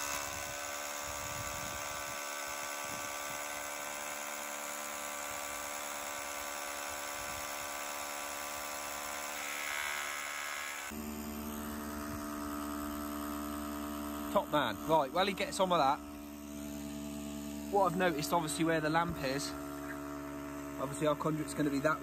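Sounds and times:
hammer drill droning: 0.0 - 22.0.

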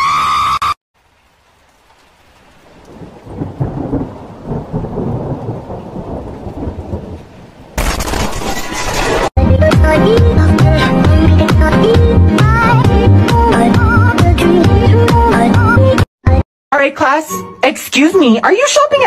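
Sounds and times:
thunder rumbling: 2.6 - 9.3
harsh crashing burst: 7.8 - 9.3.

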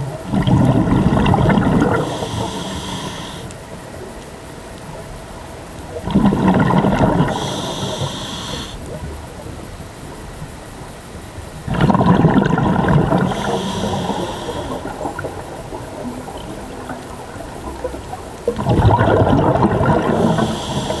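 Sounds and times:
exhaled bubbles underwater: 0.0 - 10.6, 11.5 - 21.0
regulator inhale hiss: 1.7 - 4.0, 7.0 - 9.0, 13.0 - 15.5, 19.9 - 21.0.

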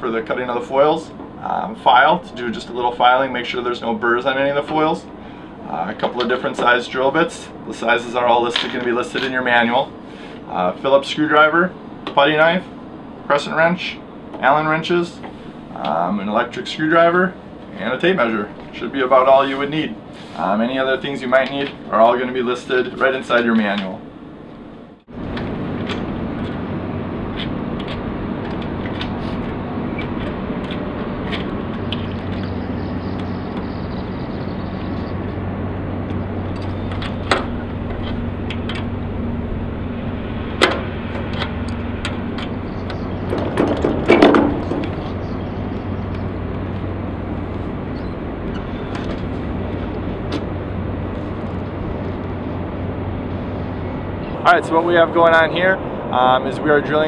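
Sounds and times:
low engine hum: 0.0 - 57.0
outdoor noise: 0.0 - 57.0
metal boom hardware clunking: 43.2 - 45.2.

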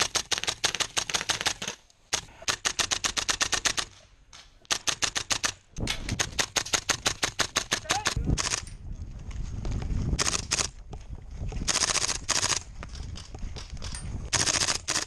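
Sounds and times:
airsoft rifle firing full-auto: 14.4 - 15.0.

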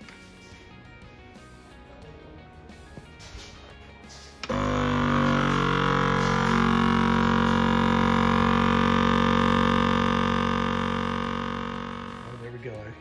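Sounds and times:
vacuum sealer pump droning: 4.4 - 12.6.

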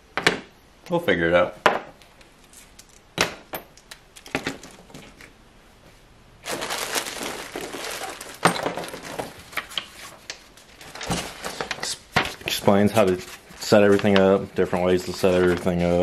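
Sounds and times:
packaging crinkling and rustling: 6.4 - 16.0.

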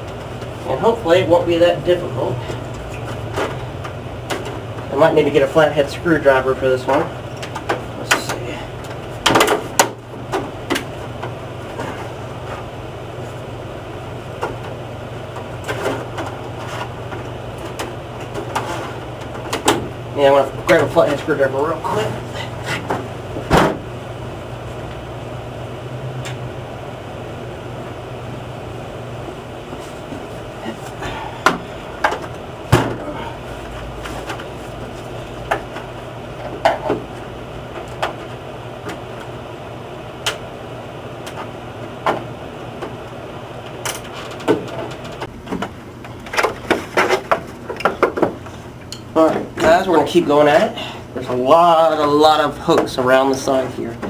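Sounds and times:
low room hum: 0.0 - 54.0.

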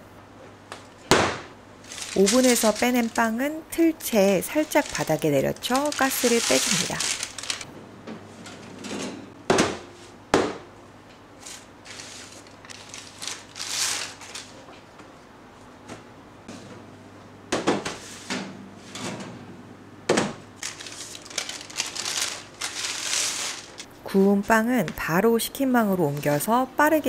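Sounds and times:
baking paper rustling: 1.8 - 7.7, 11.4 - 14.8, 20.6 - 26.7.

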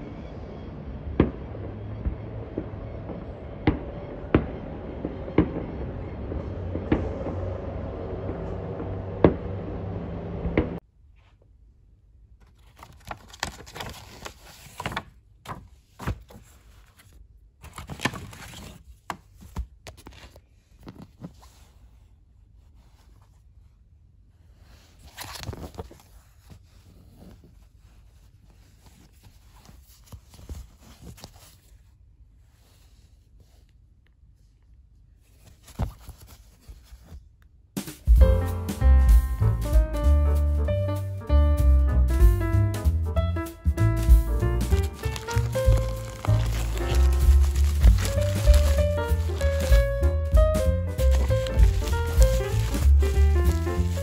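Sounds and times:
loud outdoor din: 0.0 - 10.8
cardboard box rustling and scraping: 44.7 - 50.2, 50.9 - 54.0.

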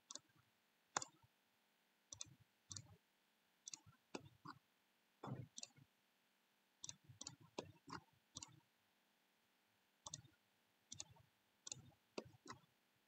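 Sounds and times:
computer mouse clicks: 0.1 - 0.4, 1.0 - 1.2, 2.1 - 3.0, 3.7 - 4.6, 5.2 - 5.8, 6.8 - 8.6, 10.0 - 12.7.

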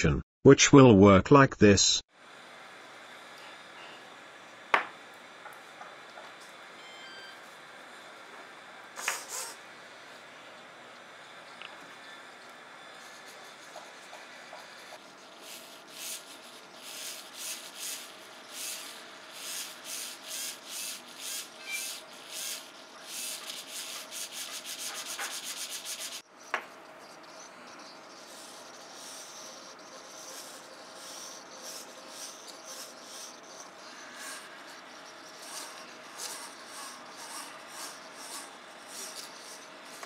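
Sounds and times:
servo motor whirring: 15.5 - 24.5.

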